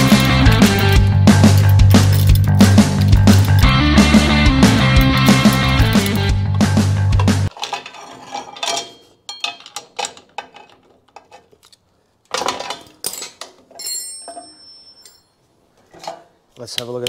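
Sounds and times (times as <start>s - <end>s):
hand tools clicking on metal: 0.0s - 3.8s, 4.7s - 11.9s
ringing metallic clink: 13.8s - 15.4s.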